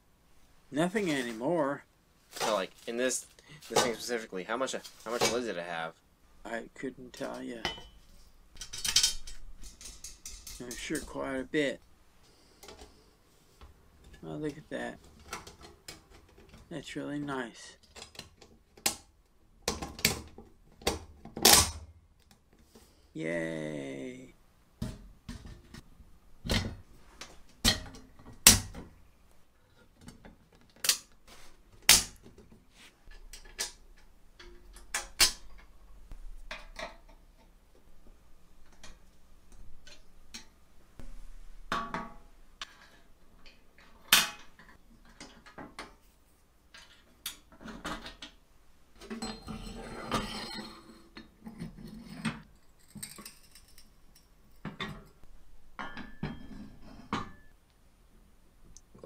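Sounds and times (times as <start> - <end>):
metal parts clicking and knocking: 8.6 - 11.1, 52.5 - 55.2
metal parts rattling: 8.6 - 11.1, 52.5 - 54.4.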